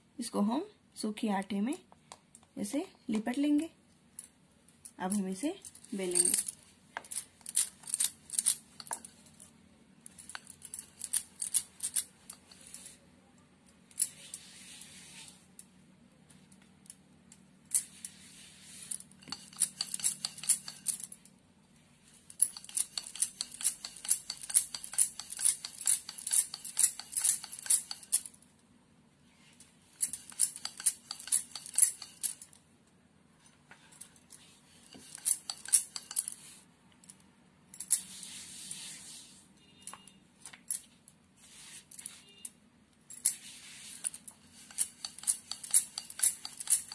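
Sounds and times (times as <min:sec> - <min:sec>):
bangles clinking: 0:04.2 - 0:13.0, 0:17.4 - 0:21.3, 0:22.1 - 0:28.4, 0:29.6 - 0:32.6, 0:33.8 - 0:38.5, 0:39.7 - 0:46.9.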